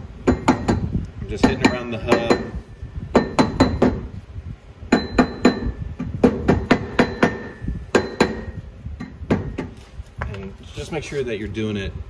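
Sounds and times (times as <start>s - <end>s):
rubber mallet striking metal: 0.2s - 2.6s, 3.2s - 4.1s, 4.9s - 9.7s.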